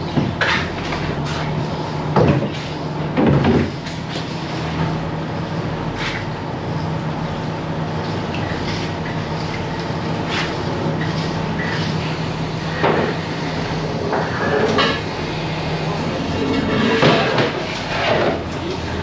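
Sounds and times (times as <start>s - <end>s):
boat engine and hauler humming: 0.0s - 19.0s
knocks and clatters on deck: 3.2s - 3.8s.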